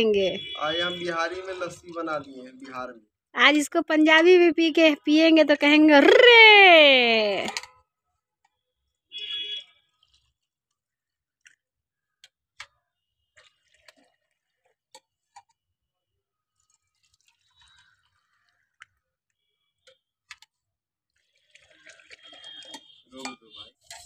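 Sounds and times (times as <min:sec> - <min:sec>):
liquid trickling into a cup: 0:00.7 - 0:02.8, 0:09.7 - 0:11.6, 0:13.2 - 0:15.6, 0:16.5 - 0:19.0, 0:21.1 - 0:24.0
steel vessels clinking: 0:21.8 - 0:24.0.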